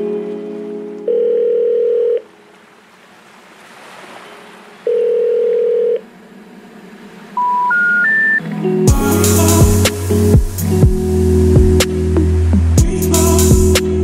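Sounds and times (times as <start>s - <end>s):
held synth tone: 4.9s - 12.4s
soft synth wash: 6.0s - 14.0s.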